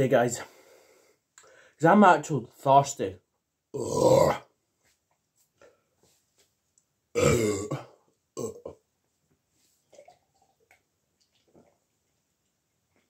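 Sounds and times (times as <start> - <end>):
person burping: 3.7 - 4.5, 7.1 - 8.9.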